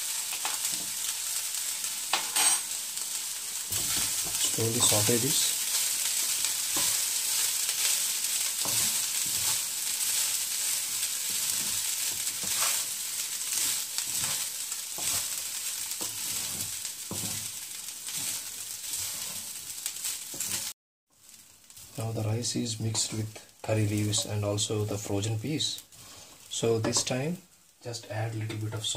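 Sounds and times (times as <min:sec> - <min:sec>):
rice sizzling in oil: 0:00.0 - 0:28.9
wooden spatula scraping and knocking: 0:03.7 - 0:15.4, 0:16.0 - 0:20.7, 0:22.8 - 0:23.3, 0:23.9 - 0:24.4.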